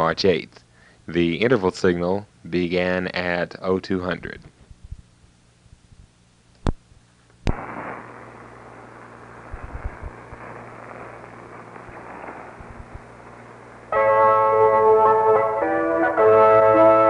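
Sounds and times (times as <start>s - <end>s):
shortwave radio static hiss: 0.0s - 17.0s
crackles: 4.2s - 17.0s
low hum: 4.6s - 17.0s
shortwave broadcast music: 7.5s - 17.0s.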